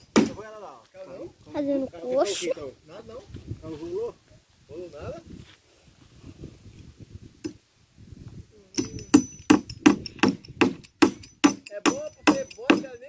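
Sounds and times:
hammer driving nails into wood: 0:00.0 - 0:00.4, 0:08.8 - 0:12.9.

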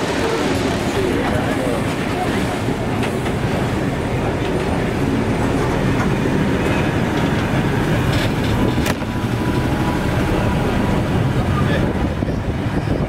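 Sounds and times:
train carriages rumbling past: 0:00.0 - 0:13.0
wheels clicking over rail joints: 0:05.6 - 0:09.6.

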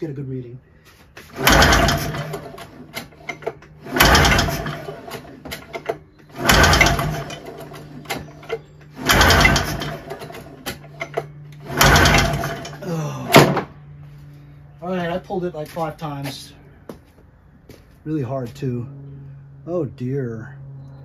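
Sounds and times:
pull-starter cranking engine: 0:01.2 - 0:13.5.

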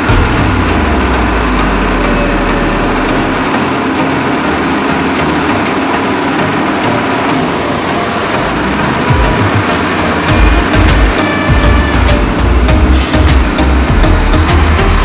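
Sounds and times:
dump truck diesel engine rumble: 0:00.0 - 0:15.0.

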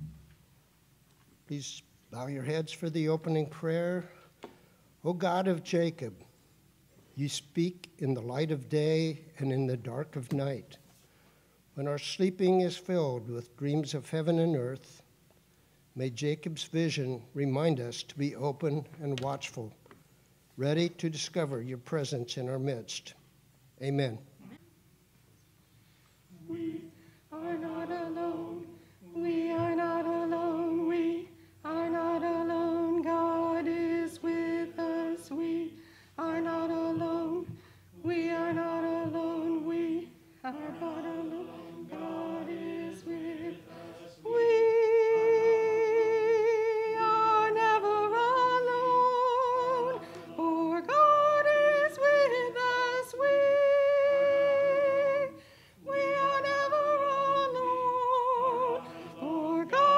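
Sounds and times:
choir singing unaccompanied: 0:26.3 - 0:59.9.

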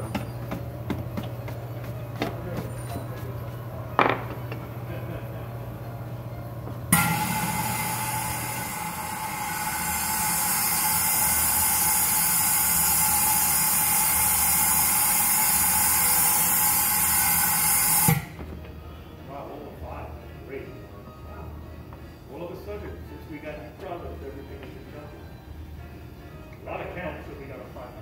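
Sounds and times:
hat steamer hissing: 0:06.9 - 0:18.4.

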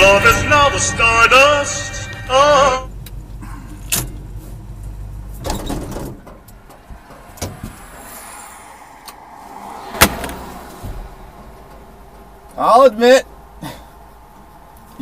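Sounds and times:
truck engine rumble: 0:00.0 - 0:15.0
clicks and knocks in cab: 0:05.4 - 0:07.8.

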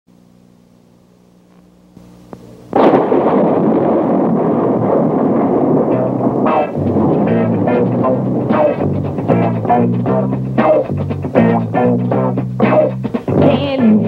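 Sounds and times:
faint low hum: 0:00.1 - 0:14.0
loud explosion blast: 0:02.8 - 0:09.4.

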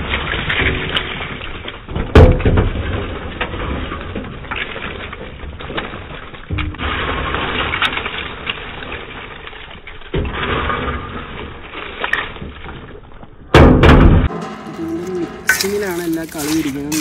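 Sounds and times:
loud metal clatter: 0:13.6 - 0:17.0
ladle scraping steel tray: 0:14.3 - 0:17.0.

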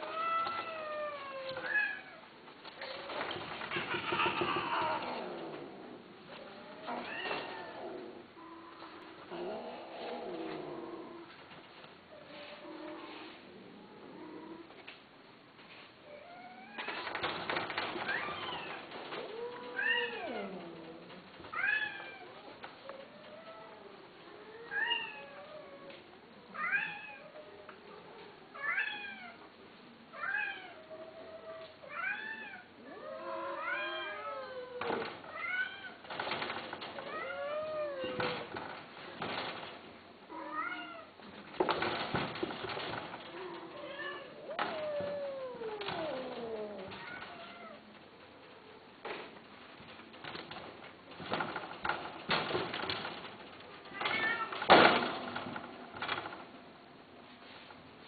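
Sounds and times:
cat meowing: 0:43.5 - 0:47.8, 0:53.9 - 0:54.6.

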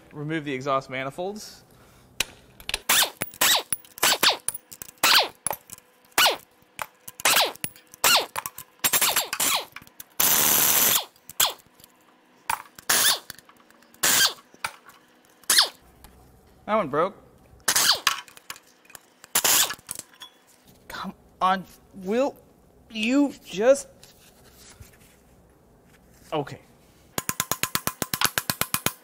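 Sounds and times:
pneumatic impact wrench bursts: 0:02.8 - 0:05.4, 0:07.2 - 0:11.6, 0:12.8 - 0:13.4, 0:14.0 - 0:14.4, 0:15.4 - 0:15.8, 0:17.7 - 0:18.2, 0:19.3 - 0:19.9.

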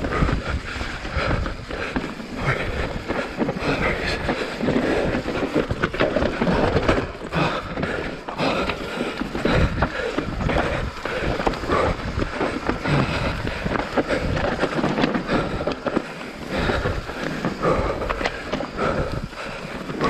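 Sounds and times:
wind rushing on microphone: 0:00.0 - 0:07.8, 0:09.4 - 0:15.9
bike rattling and knocking: 0:00.0 - 0:20.0
tyres crunching over dirt and stones: 0:00.0 - 0:20.0.

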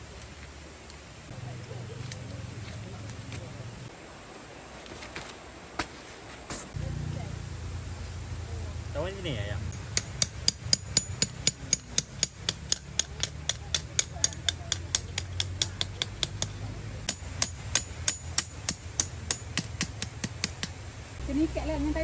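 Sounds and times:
hammer striking metal: 0:09.7 - 0:20.7.

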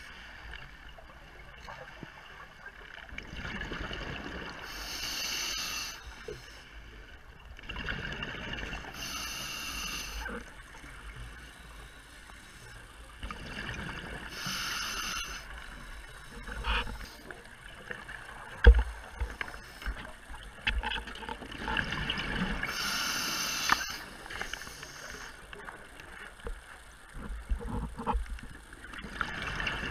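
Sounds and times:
breathing through regulator: 0:04.6 - 0:06.7, 0:08.9 - 0:10.5, 0:14.3 - 0:17.3, 0:22.6 - 0:25.4.

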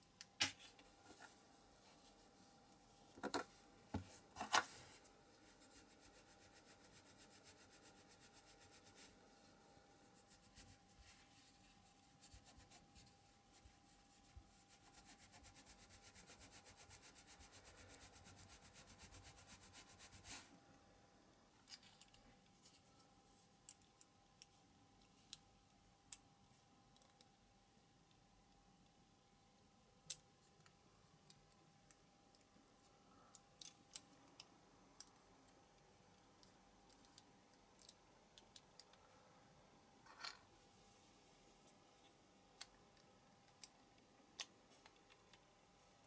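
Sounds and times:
light clicks of small parts: 0:21.6 - 0:26.3, 0:26.9 - 0:27.4, 0:29.6 - 0:39.1, 0:41.6 - 0:45.5.

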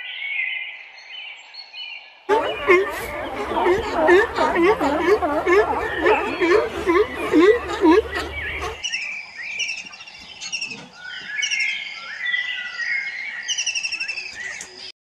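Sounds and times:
songbirds chirping: 0:01.2 - 0:14.9
bird trill: 0:02.3 - 0:09.0.

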